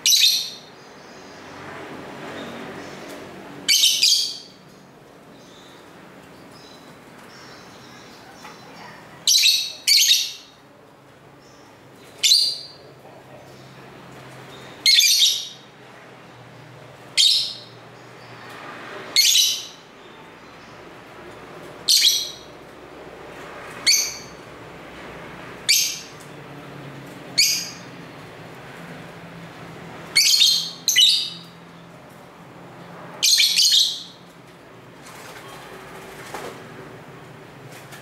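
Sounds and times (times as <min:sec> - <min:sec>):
lovebirds chirping: 0:00.0 - 0:10.7, 0:11.4 - 0:15.7, 0:29.9 - 0:32.0.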